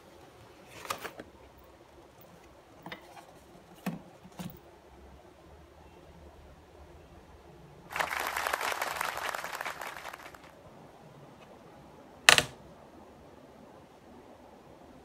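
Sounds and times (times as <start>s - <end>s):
crackling rustle of handling: 0.0s - 4.6s, 7.9s - 10.6s.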